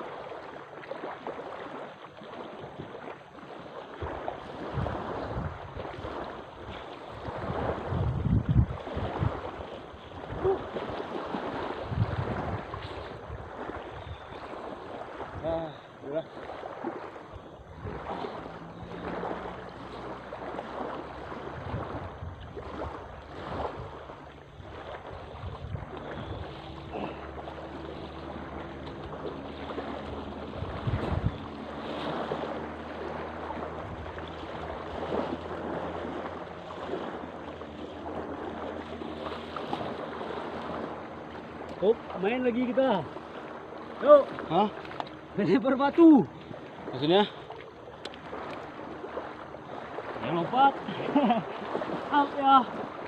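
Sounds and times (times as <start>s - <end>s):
people wading through water: 0.0s - 53.0s
wind on microphone: 4.0s - 15.8s, 16.8s - 42.8s
water lapping on pebble shore: 8.6s - 53.0s.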